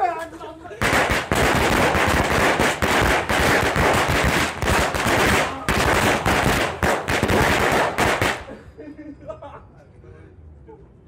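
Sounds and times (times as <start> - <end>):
firecrackers bursting: 0.8 - 8.6.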